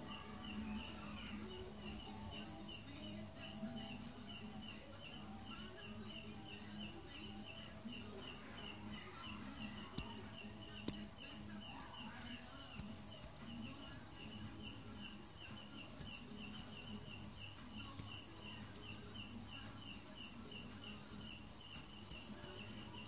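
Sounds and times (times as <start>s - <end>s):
insect chirping: 0.0s - 23.0s
sharp clicks: 1.2s - 1.7s, 9.6s - 11.1s, 11.7s - 13.6s, 17.8s - 19.1s, 21.7s - 22.8s.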